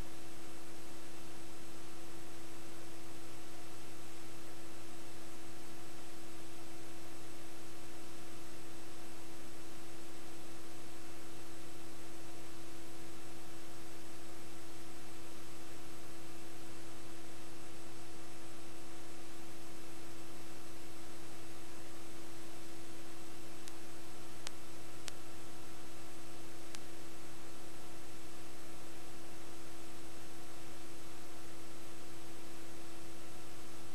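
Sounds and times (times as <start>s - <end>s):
electrical hum: 0.0s - 33.9s
tape hiss: 0.0s - 33.9s
faint ticks: 23.0s - 25.6s, 26.2s - 27.3s.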